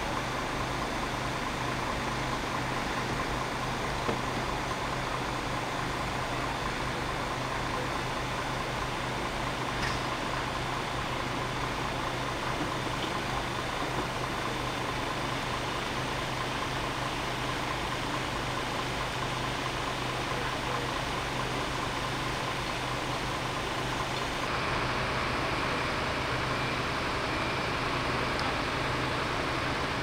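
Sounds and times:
diesel engine idling: 0.0 - 30.0.

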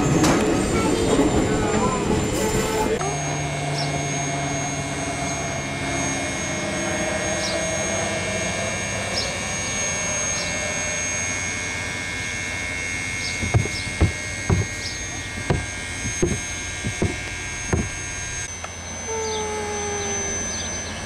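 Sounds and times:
steam locomotive hissing rumble: 0.0 - 3.7
sharp knocks: 13.4 - 18.1.

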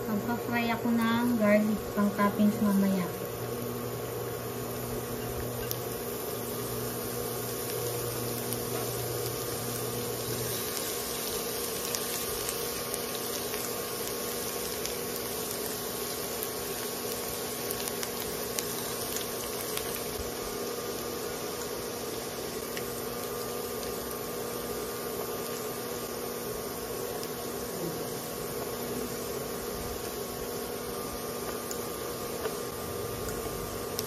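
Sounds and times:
garlic sizzling in hot oil: 0.0 - 34.0
induction cooker hum: 0.0 - 34.0.

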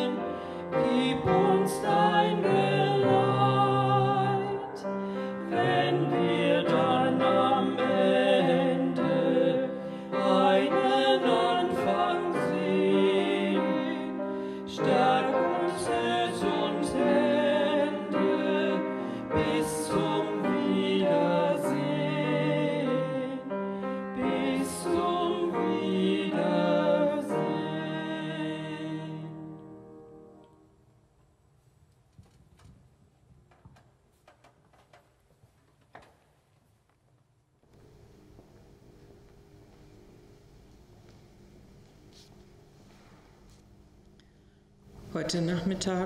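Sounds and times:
man and woman singing: 0.0 - 23.5, 24.2 - 29.5
upright piano: 0.0 - 30.4.

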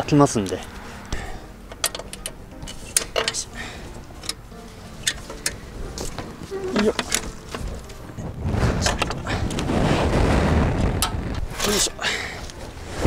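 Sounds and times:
engine cover latch clicks: 1.7 - 3.5
cover scraping and rattling: 5.0 - 10.2.

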